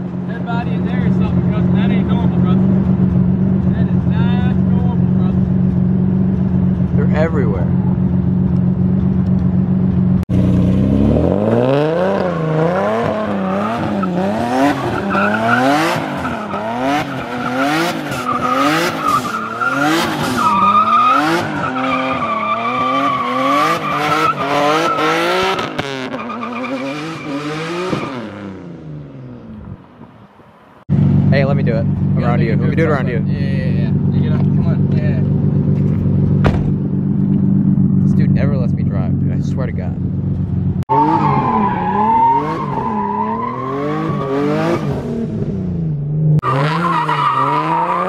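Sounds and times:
car engine revving: 0:00.0 - 0:48.0
tyres squealing: 0:12.2 - 0:25.2.

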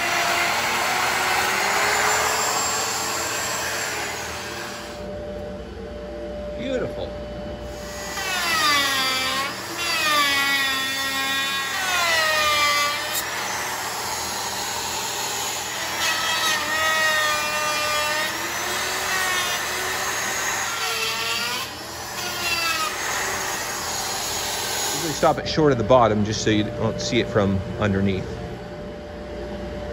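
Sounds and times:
router cutting plywood: 0:00.0 - 0:05.0, 0:07.7 - 0:25.4.

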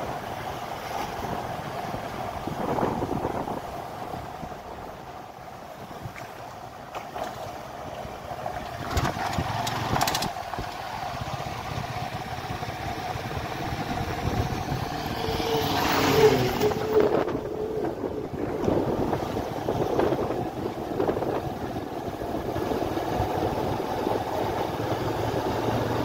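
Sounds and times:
vehicle driving on rough road: 0:00.0 - 0:26.0.

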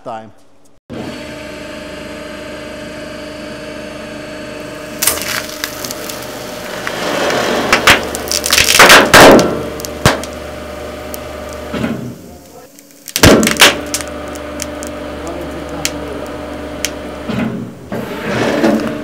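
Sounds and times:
hydraulic press humming: 0:00.9 - 0:19.0
frozen paper cracking: 0:04.9 - 0:11.7, 0:12.3 - 0:17.0.

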